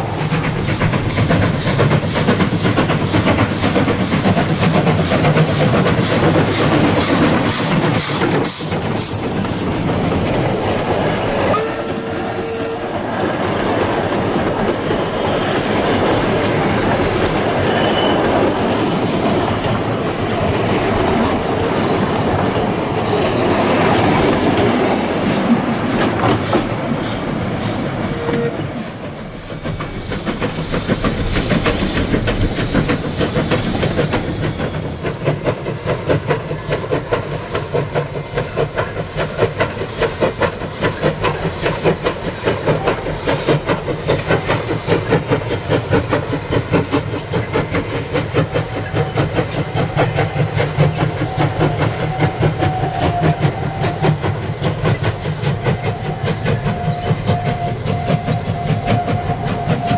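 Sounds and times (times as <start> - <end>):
steam locomotive exhaust chuffing: 0.0 - 59.9
train wheels clattering over rail joints: 0.0 - 59.9
wheel squeals: 17.4 - 19.8, 55.8 - 59.9.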